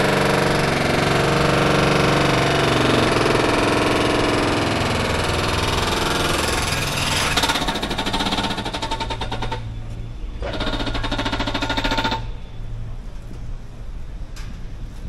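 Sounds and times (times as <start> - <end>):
jackhammer hammering: 0.0 - 9.7, 10.4 - 12.4.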